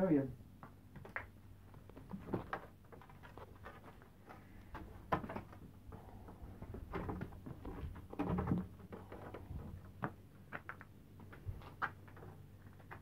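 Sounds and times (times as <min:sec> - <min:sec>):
lumber knocking and scraping: 0:01.0 - 0:13.0.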